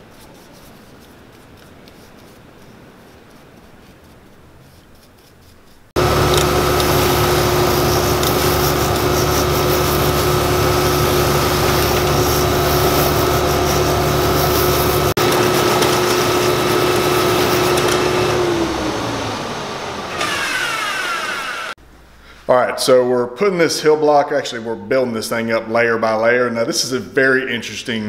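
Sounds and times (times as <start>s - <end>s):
grinding hiss of sanding: 1.9s - 18.4s
machine motor hum: 6.0s - 21.8s.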